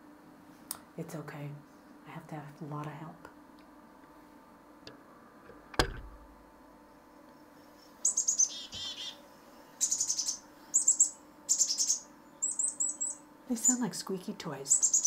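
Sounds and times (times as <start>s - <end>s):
handling thump: 5.5s - 6.3s
chickadee calls from speaker: 8.0s - 9.2s, 9.8s - 13.9s, 14.6s - 15.0s.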